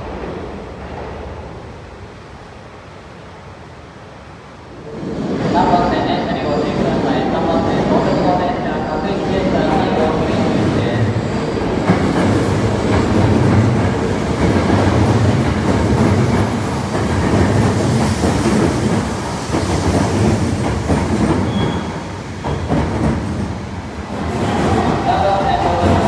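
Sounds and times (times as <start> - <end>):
train rumble echoing in tunnel: 0.0 - 26.0
train wheels clattering on rails: 9.7 - 26.0.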